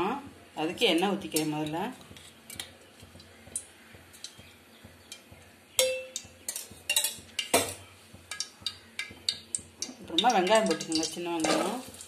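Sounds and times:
metal kitchenware clinking: 0:05.1 - 0:12.0.

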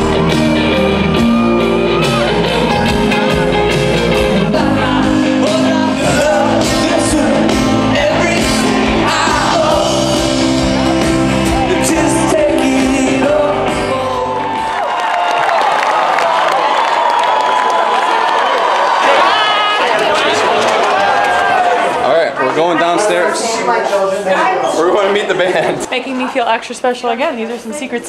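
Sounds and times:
audience shouting: 0:00.0 - 0:12.6, 0:14.1 - 0:24.8
live rock band with singer: 0:00.0 - 0:14.8.

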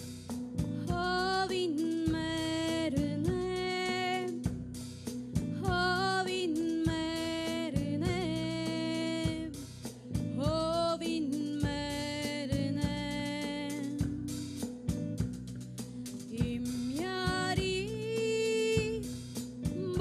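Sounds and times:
bass guitar: 0:00.0 - 0:20.0
drum kit: 0:00.0 - 0:20.0
woman singing long held notes: 0:00.8 - 0:04.4, 0:10.4 - 0:14.5, 0:16.3 - 0:19.1, 0:19.8 - 0:20.0.

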